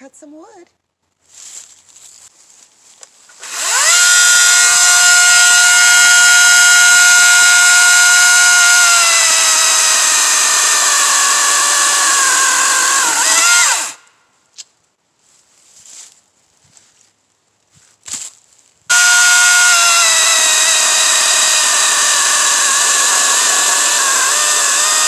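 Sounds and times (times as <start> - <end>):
electric chainsaw whine: 3.3 - 14.0, 18.9 - 25.0.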